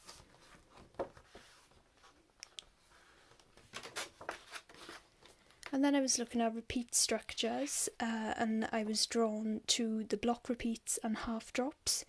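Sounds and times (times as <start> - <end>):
paper page rustling: 0.0 - 2.2, 3.6 - 5.4.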